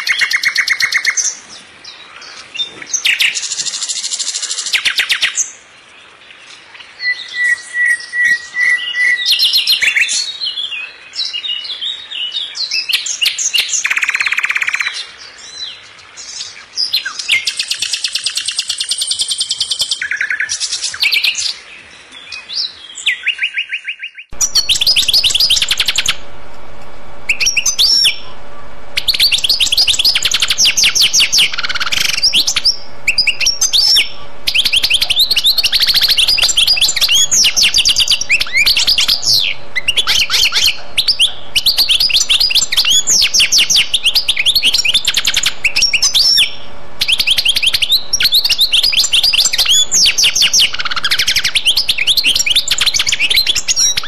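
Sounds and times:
birds chirping and singing: 0:00.0 - 0:54.0
steady hum: 0:24.3 - 0:54.0.

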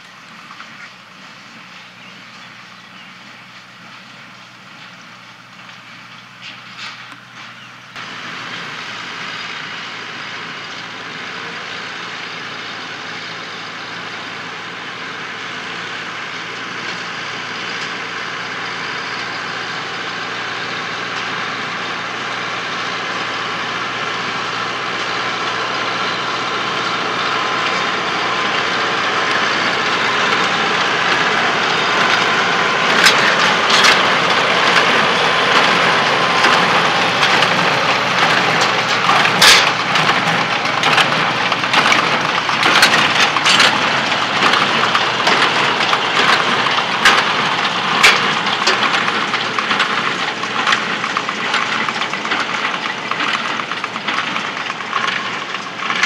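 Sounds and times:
tractor engine running: 0:00.0 - 0:56.0
baler mechanical clatter: 0:23.8 - 0:56.0.

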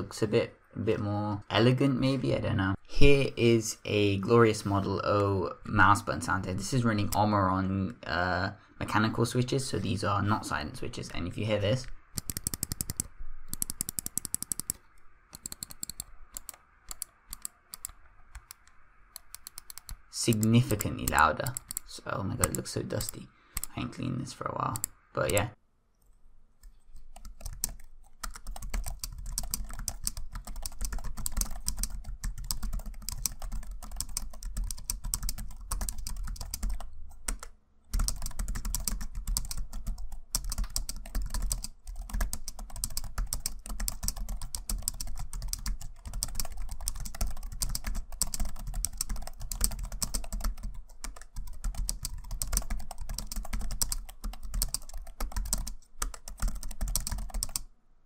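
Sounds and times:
fast typing on keyboard: 0:12.2 - 0:14.8, 0:15.4 - 0:18.6, 0:19.2 - 0:23.8, 0:27.0 - 0:57.6.

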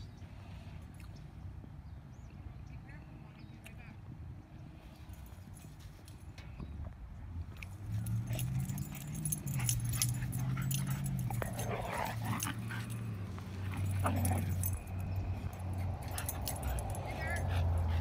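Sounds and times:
dog growling: 0:10.4 - 0:14.8.

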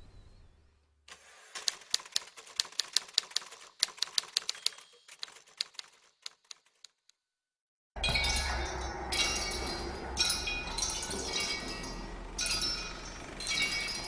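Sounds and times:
typewriter keys clicking: 0:01.5 - 0:07.0.

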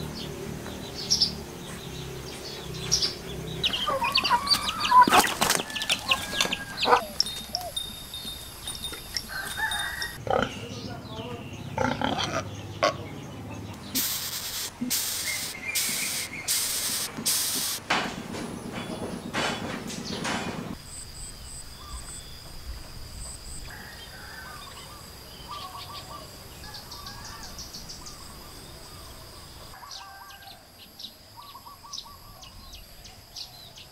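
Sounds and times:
birds chirping: 0:00.0 - 0:33.9
high-pitched insect drone: 0:07.1 - 0:10.2
loud hissing bursts: 0:13.9 - 0:17.9.

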